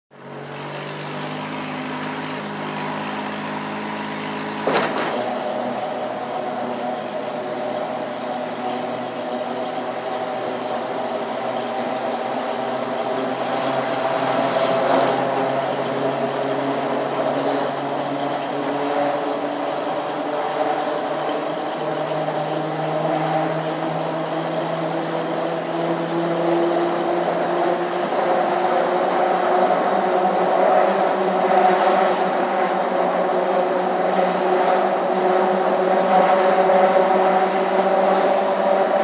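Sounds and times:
golf cart motor hum: 0:00.2 - 0:39.0.

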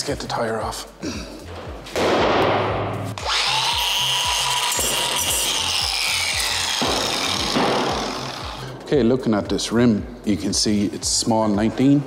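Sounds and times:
music with steady beat: 0:00.0 - 0:12.0
grinder running on metal: 0:03.2 - 0:08.7.

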